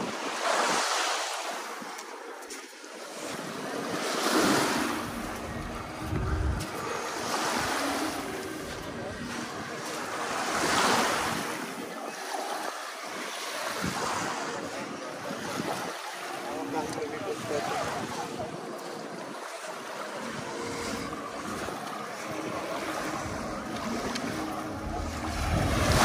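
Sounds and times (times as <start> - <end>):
surf washing up beach: 0.0 - 26.0
wind buffeting microphone: 4.9 - 12.0, 13.7 - 16.0, 20.3 - 26.0.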